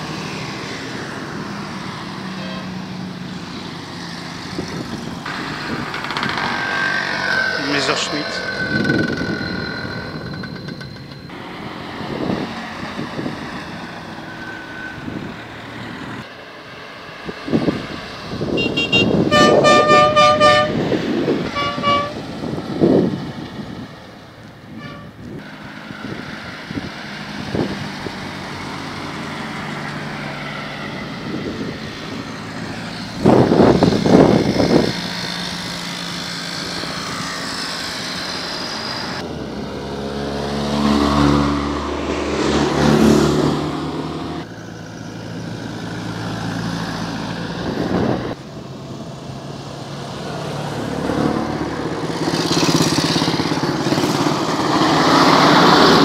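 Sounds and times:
vintage cars driving past: 0.0s - 56.0s
car horn tooting: 2.4s - 2.7s, 18.5s - 20.8s, 21.5s - 22.2s, 24.8s - 25.2s.

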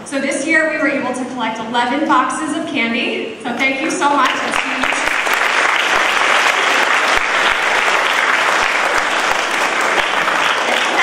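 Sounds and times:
audience applause: 4.2s - 11.0s.

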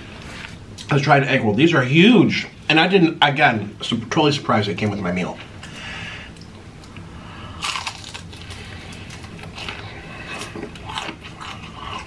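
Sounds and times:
crunching of fried egg roll: 7.5s - 12.0s
chewing crunches: 7.6s - 12.0s.

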